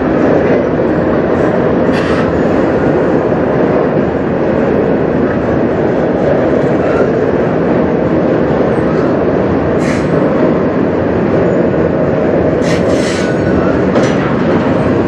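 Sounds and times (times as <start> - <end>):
train wheels rumbling on rails: 0.0 - 15.0
hissing from train running gear: 1.9 - 2.6, 9.8 - 10.3, 12.6 - 14.8.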